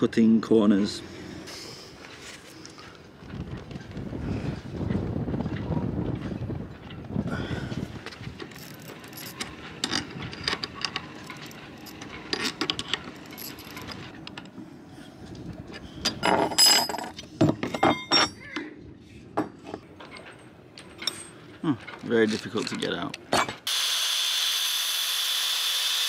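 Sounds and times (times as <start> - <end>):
tools clinking on metal: 8.5 - 14.5, 16.0 - 18.6, 19.4 - 23.6
ringing metal clang: 17.6 - 18.6.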